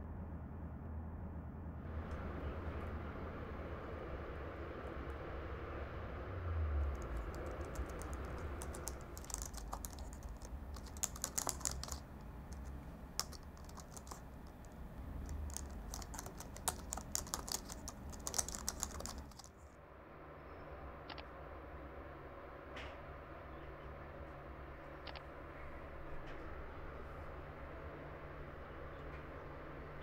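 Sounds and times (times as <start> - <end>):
low steady hum: 0.0 - 30.0
laptop keyboard typing: 6.7 - 19.6.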